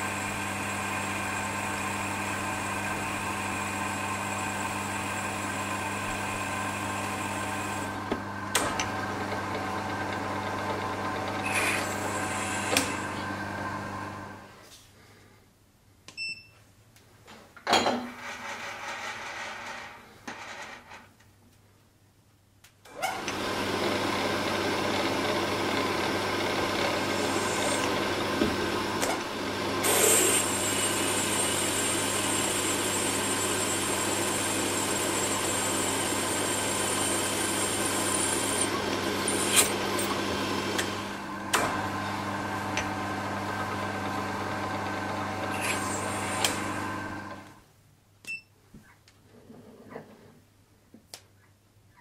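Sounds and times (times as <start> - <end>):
drill boring into metal: 11.2 - 13.2, 23.1 - 29.0, 29.8 - 41.1, 45.4 - 47.2.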